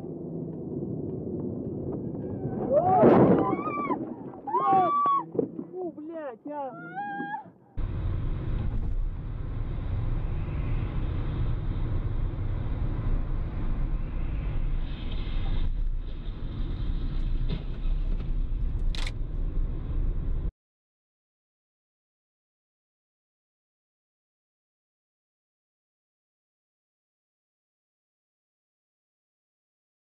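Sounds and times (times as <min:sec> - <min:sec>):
car engine and road noise: 0:00.0 - 0:04.5, 0:07.6 - 0:20.5.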